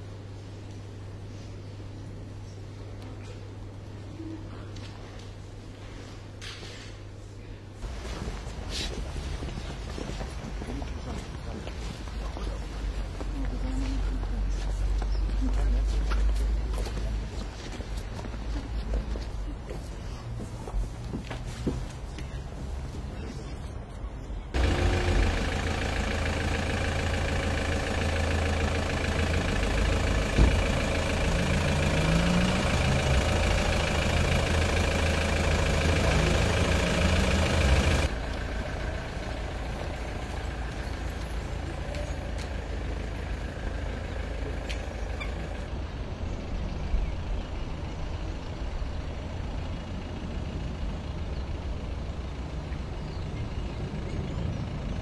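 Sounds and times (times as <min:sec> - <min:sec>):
van engine pulling away: 0:24.5 - 0:55.0.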